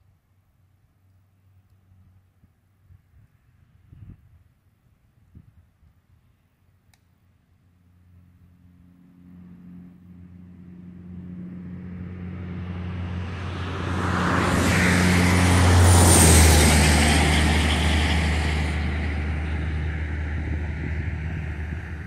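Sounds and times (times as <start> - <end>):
vehicle passing on road: 7.6 - 22.0.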